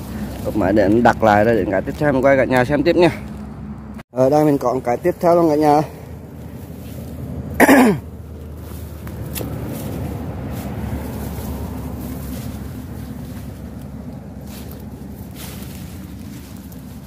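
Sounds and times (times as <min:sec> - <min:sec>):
low rumble: 0:05.9 - 0:17.0
man clearing throat: 0:07.6 - 0:08.1.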